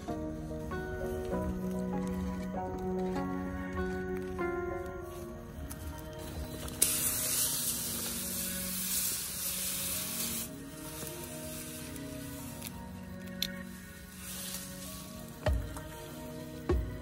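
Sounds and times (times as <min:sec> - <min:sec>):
background music: 0:00.0 - 0:17.0
sprayer nozzle hissing: 0:05.7 - 0:17.0.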